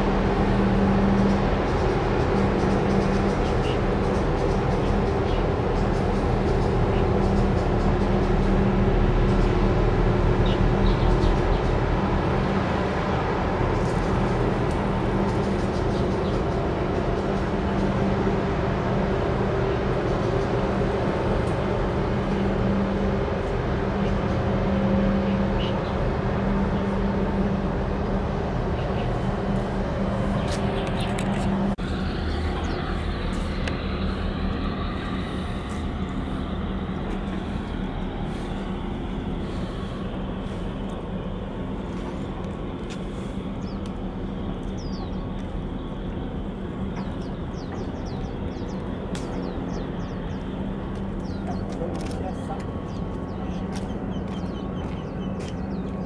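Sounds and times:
engine drone: 0:00.0 - 0:56.0.

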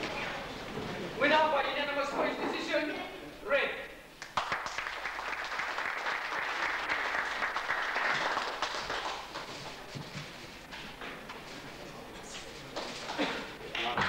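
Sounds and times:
audience applauding: 0:04.2 - 0:09.9.

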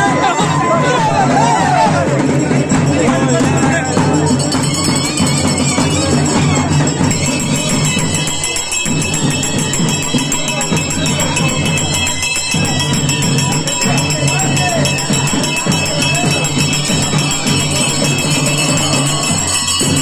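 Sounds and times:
jingling percussion: 0:00.0 - 0:20.0
loud music with steady beat: 0:10.6 - 0:20.0.

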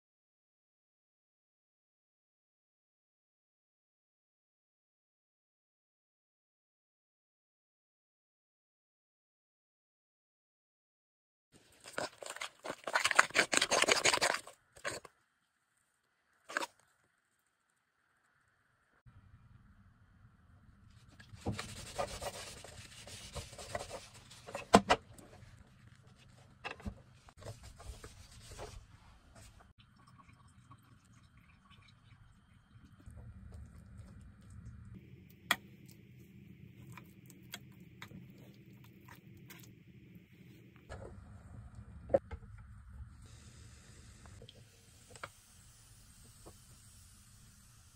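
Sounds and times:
low steady hum: 0:18.8 - 0:44.6.

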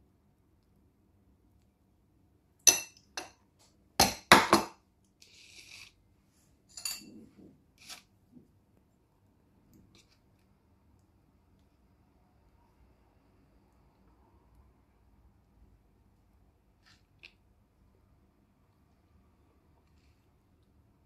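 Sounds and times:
cutlery clinking against a plate: 0:06.7 - 0:07.1.

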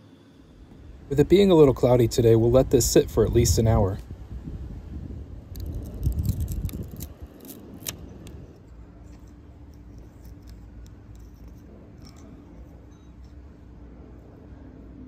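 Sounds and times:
low steady hum: 0:00.0 - 0:15.0
plastic strip peeling: 0:05.5 - 0:08.4.

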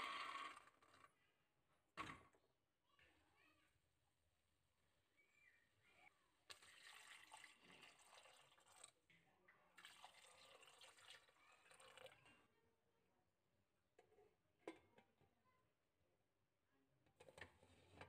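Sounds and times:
water pouring into a pot: 0:06.5 - 0:09.1, 0:09.8 - 0:12.4.

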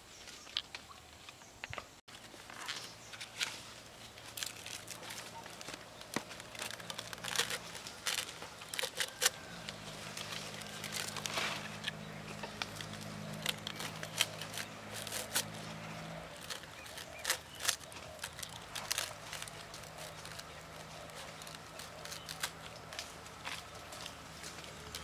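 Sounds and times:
leaves rustling and crackling: 0:00.0 - 0:25.0.

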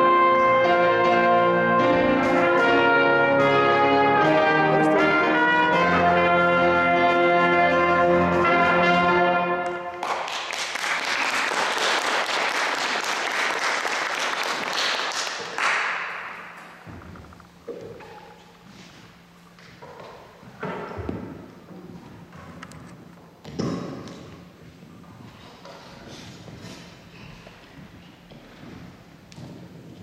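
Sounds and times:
audience applause: 0:10.0 - 0:16.3.

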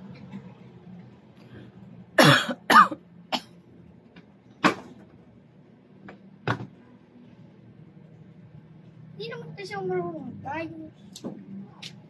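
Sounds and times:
person coughing: 0:02.2 - 0:03.5.

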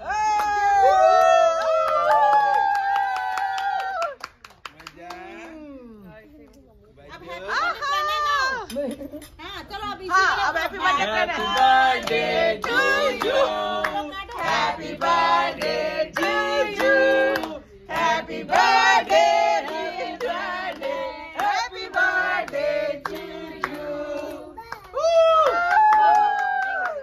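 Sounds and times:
group of voices singing: 0:10.5 - 0:24.6.

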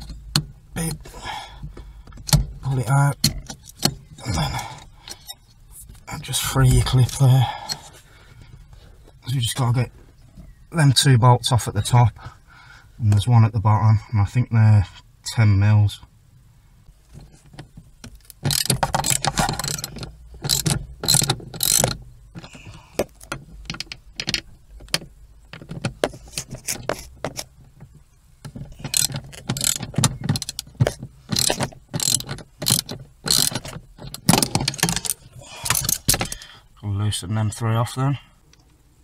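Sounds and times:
socket ratchet clicking: 0:18.1 - 0:22.4, 0:28.8 - 0:36.4.

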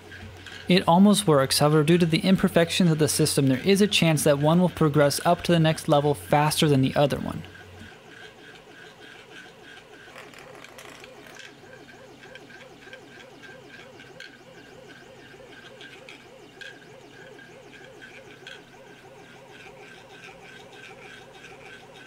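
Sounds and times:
steel balls rattling in plastic track: 0:00.0 - 0:14.6, 0:15.2 - 0:22.0
stepper motor whine: 0:00.0 - 0:22.0.

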